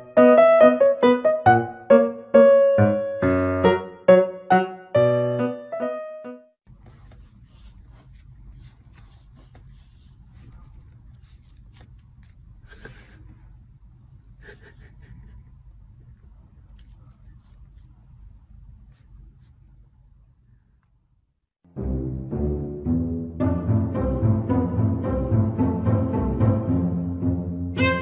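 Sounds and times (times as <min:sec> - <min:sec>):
room hum: 0:06.6 - 0:21.5.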